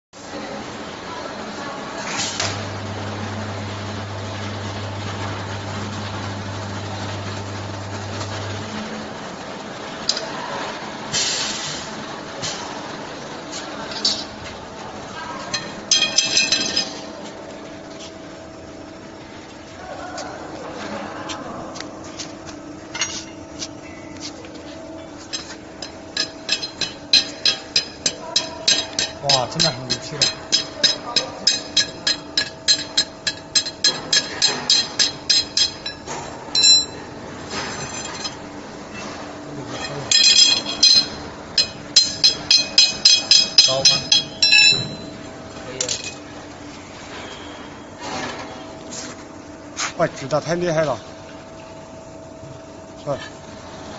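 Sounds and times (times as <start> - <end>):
steady low hum: 2.4 - 10.2, 13.2 - 53.9
metal ring clanging on concrete: 15.5 - 17.0, 25.3 - 37.0, 37.7 - 38.4, 39.8 - 45.2
hammer striking metal: 25.3 - 37.0, 39.8 - 45.2.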